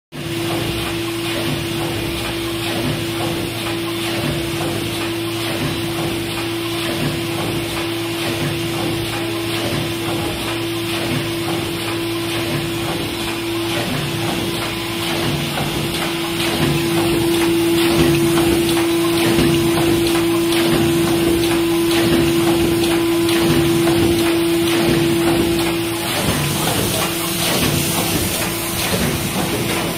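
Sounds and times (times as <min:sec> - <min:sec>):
machine humming: 0:00.2 - 0:29.9
rapid mechanical clicking: 0:00.3 - 0:29.9.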